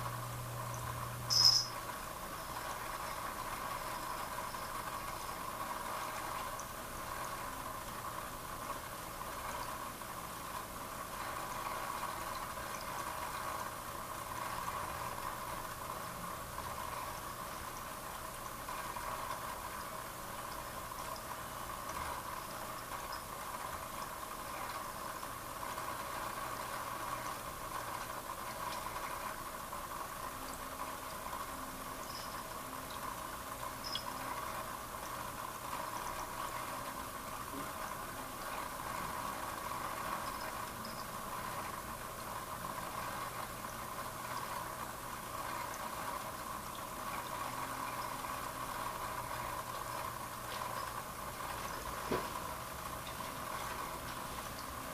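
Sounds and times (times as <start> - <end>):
aquarium filter hum: 0.0 - 54.9.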